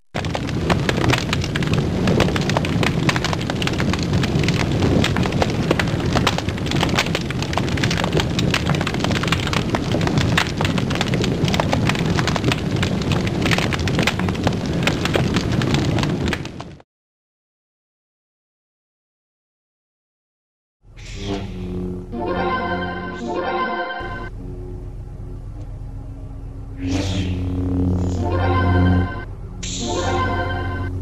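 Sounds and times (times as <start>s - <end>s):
fire crackling and popping: 0.0s - 16.8s, 26.8s - 31.0s.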